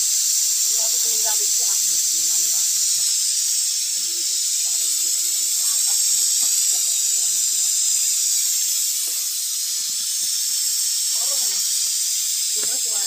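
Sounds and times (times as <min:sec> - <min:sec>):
pressure cooker steam hissing: 0:00.0 - 0:13.0.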